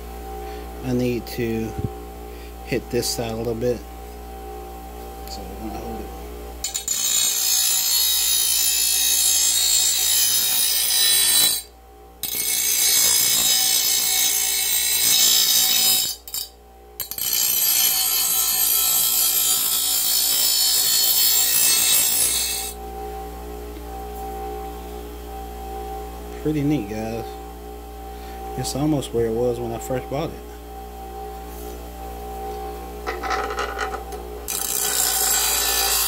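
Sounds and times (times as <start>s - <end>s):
blade grinding on bench grinder: 6.6s - 22.8s, 32.4s - 36.0s.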